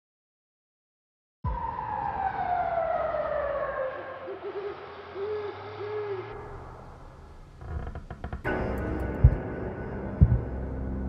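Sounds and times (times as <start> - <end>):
owl hooting: 3.3 - 6.4.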